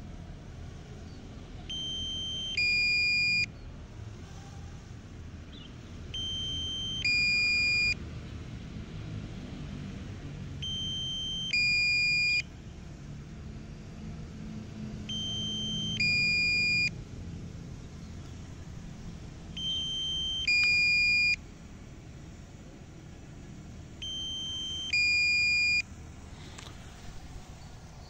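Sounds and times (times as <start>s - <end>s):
low background noise: 0.0s - 28.0s
electronic two-tone warning beeps: 1.7s - 3.5s, 6.2s - 8.0s, 10.6s - 12.5s, 15.1s - 17.0s, 19.6s - 21.4s, 24.0s - 25.9s.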